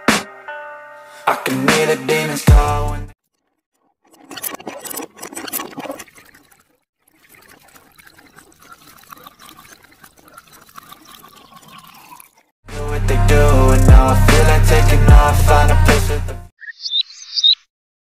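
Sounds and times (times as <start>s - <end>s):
hose water splashing on sand: 4.2s - 12.4s.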